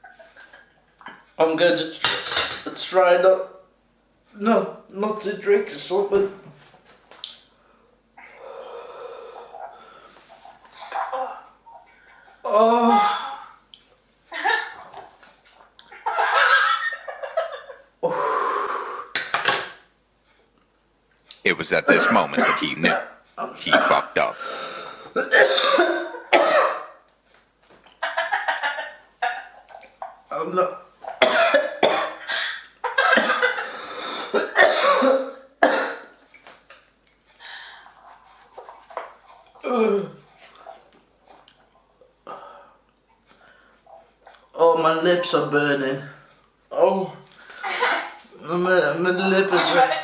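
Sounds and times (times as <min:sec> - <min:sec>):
heavy breathing: 0:07.6 - 0:10.9, 0:24.3 - 0:25.2
man coughing and gasping: 0:21.6 - 0:24.5, 0:25.1 - 0:27.0, 0:31.2 - 0:32.3, 0:33.2 - 0:33.6, 0:34.3 - 0:36.1.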